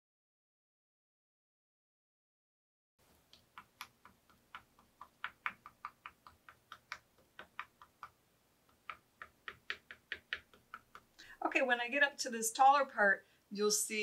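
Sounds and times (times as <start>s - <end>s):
sponge dauber tapping wood: 3.3s - 11.1s.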